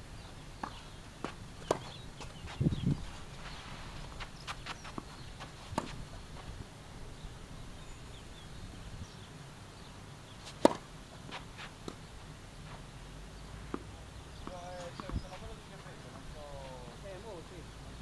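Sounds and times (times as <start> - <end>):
tennis balls struck and bounced: 0.6 - 2.6, 4.2 - 6.2, 10.4 - 12.1, 13.7 - 17.4.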